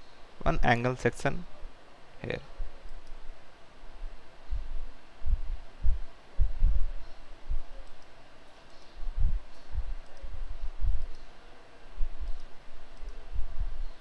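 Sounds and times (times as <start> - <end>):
computer mouse clicks: 2.8 - 3.2, 7.8 - 10.3, 11.0 - 11.3, 12.2 - 13.2
dull low thumps: 4.5 - 7.7, 9.0 - 10.0, 10.6 - 11.1.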